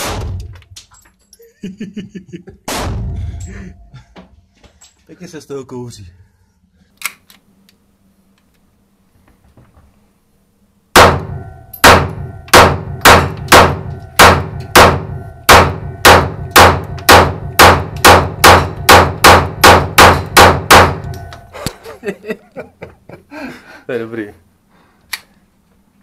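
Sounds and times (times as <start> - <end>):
handgun shots indoors: 0.0 - 0.9, 10.9 - 21.5.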